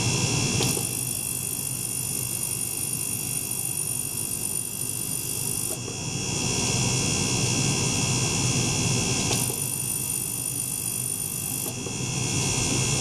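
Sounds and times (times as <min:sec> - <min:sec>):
ultrasonic cleaner hum and hiss: 0:00.0 - 0:00.9, 0:05.6 - 0:13.0
pump circulating liquid: 0:00.0 - 0:13.0.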